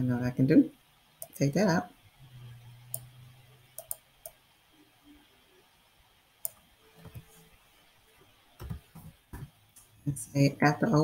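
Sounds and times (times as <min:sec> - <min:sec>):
mouse and keyboard clicks: 0:03.8 - 0:04.4.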